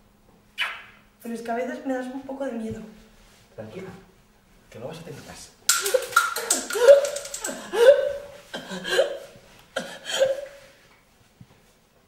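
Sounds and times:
woman crying out in distress: 6.5s - 10.6s.

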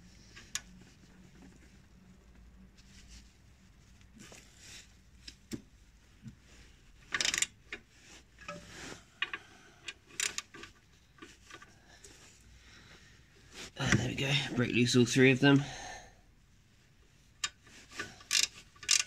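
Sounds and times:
ratchet wrench clicking: 7.2s - 7.5s, 10.2s - 10.5s, 18.2s - 19.0s.

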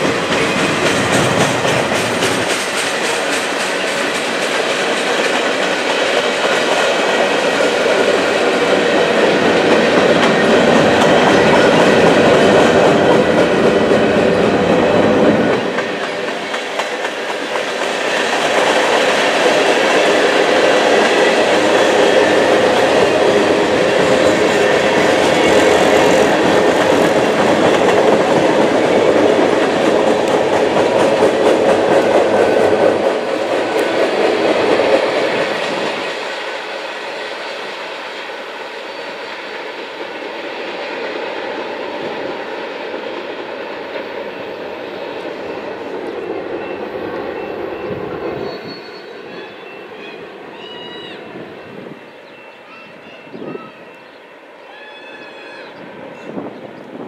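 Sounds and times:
freight train wheels rumbling on rails: 0.0s - 57.0s.

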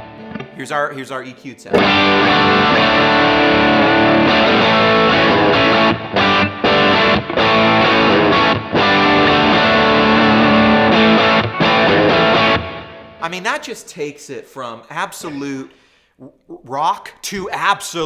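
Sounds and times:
distorted electric guitar riff: 0.0s - 0.6s, 1.7s - 13.2s.

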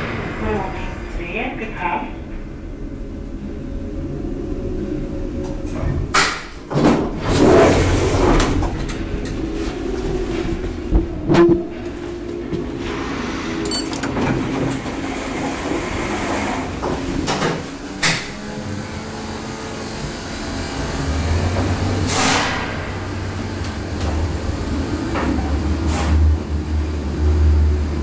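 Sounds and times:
lift car humming: 0.0s - 28.0s.

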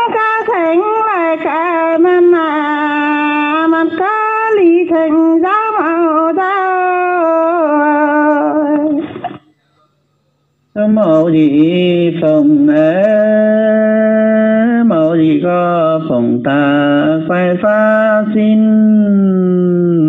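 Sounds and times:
woman singing unaccompanied: 0.0s - 9.1s.

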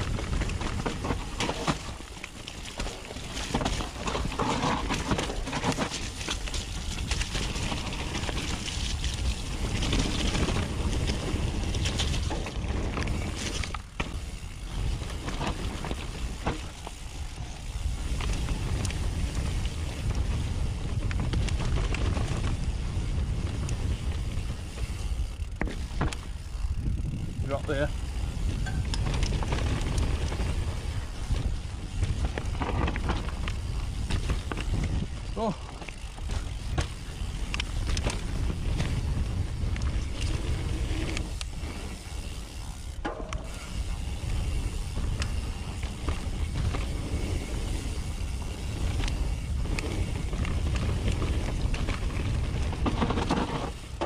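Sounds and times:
bike chain and frame rattling: 0.0s - 54.0s
tyres on dirt and rock: 0.0s - 54.0s
wind on microphone: 17.3s - 35.6s.

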